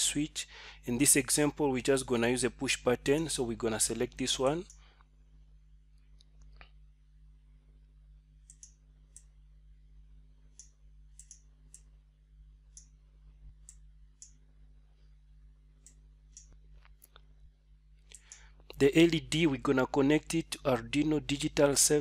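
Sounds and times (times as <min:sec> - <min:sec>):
low electrical hum: 0:00.0 - 0:22.0
computer mouse clicks: 0:08.4 - 0:09.3, 0:10.5 - 0:11.9.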